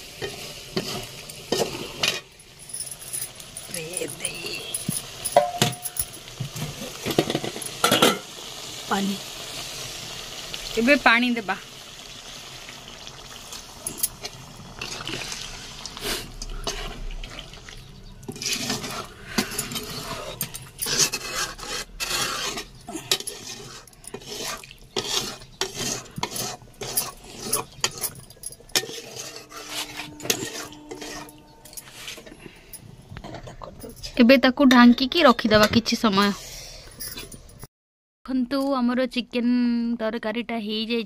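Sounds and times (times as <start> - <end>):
curry frying: 0.0 - 31.2
spatula scraping metal pot: 0.2 - 2.3, 16.2 - 33.7
water poured into pot: 11.6 - 19.7.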